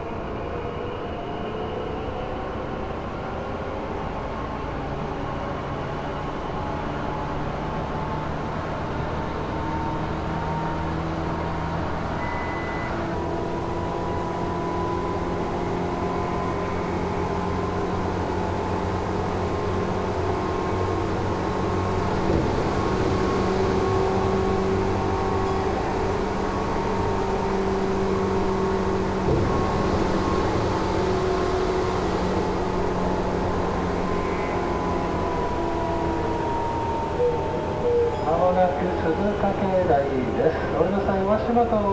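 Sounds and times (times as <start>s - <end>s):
train wheels rumbling on rails: 12.9s - 41.9s.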